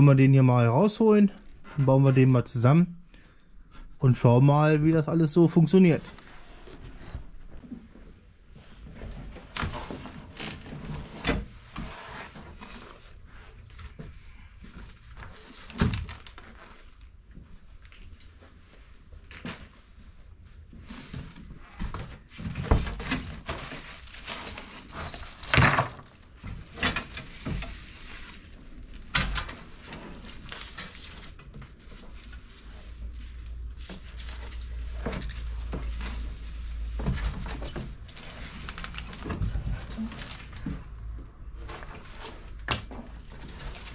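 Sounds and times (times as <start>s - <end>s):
knocks and clunks of packaging: 33.8s - 43.9s.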